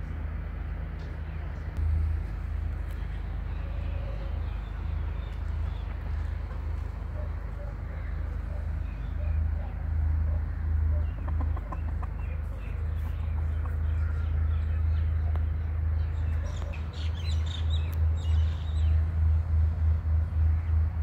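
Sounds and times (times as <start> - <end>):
chickens clucking: 5.3 - 15.5.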